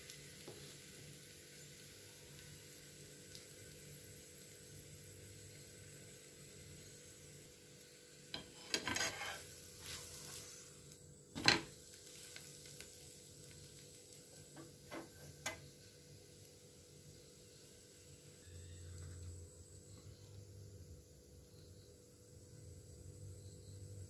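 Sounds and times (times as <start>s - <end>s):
faint oil sizzle: 0.0s - 24.0s
metal spatula scraping a griddle: 8.3s - 10.7s, 11.4s - 11.7s, 14.6s - 15.6s.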